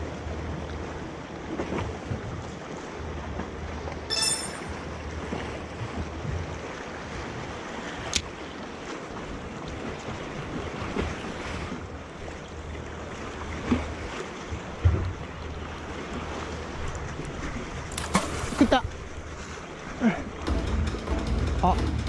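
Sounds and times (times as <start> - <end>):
short high ring: 4.1 - 4.9
sea waves against rocks: 4.7 - 20.5.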